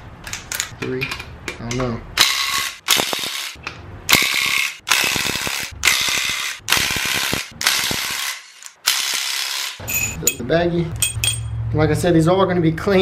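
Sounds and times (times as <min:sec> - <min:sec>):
impact wrench hammering: 0:02.2 - 0:10.4, 0:11.0 - 0:11.6.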